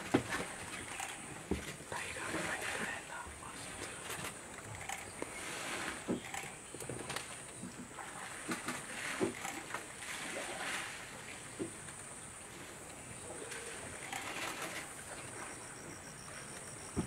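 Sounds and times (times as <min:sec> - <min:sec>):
elephants splashing in water: 0:00.0 - 0:17.0.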